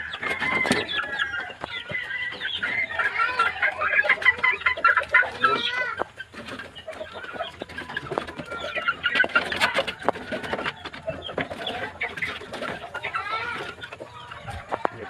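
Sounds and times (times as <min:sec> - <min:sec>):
chickens clucking: 0:00.0 - 0:15.0.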